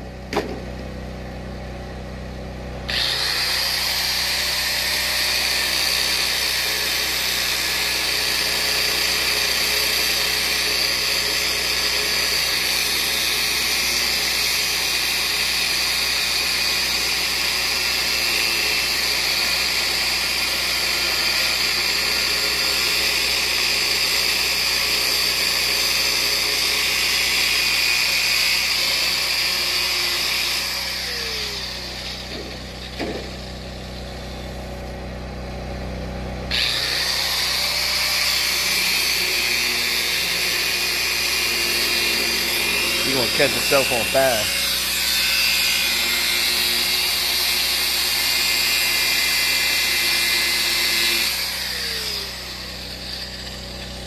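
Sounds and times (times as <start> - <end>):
angle grinder cutting metal: 2.9 - 35.0, 36.5 - 54.0.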